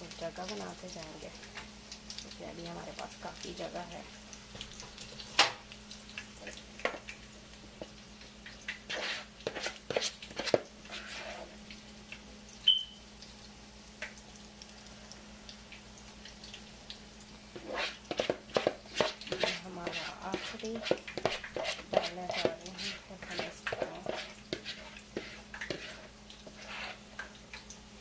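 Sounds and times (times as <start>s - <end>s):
faint oil sizzle: 0.0s - 28.0s
spoon scraping in a bowl: 8.9s - 11.5s, 17.6s - 27.0s.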